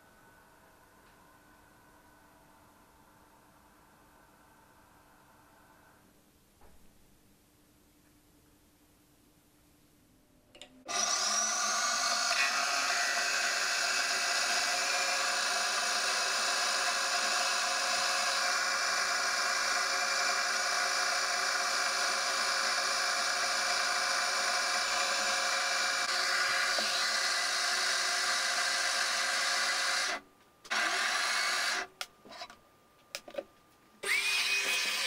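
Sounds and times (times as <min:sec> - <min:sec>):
lathe whirring and whining: 0:10.9 - 0:32.5, 0:34.0 - 0:35.0.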